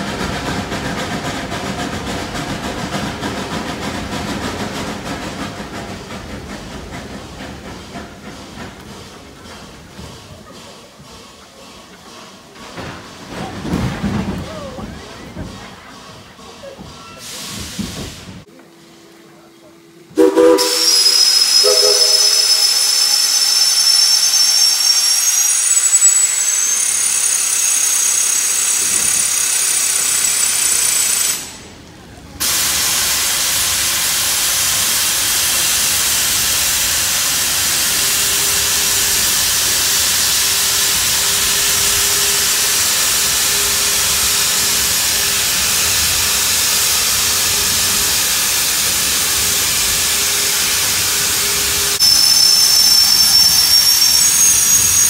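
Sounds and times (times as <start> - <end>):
steam locomotive hissing: 0.0 - 18.9, 20.1 - 55.0
high wavering squeal: 20.6 - 31.0, 50.2 - 55.0.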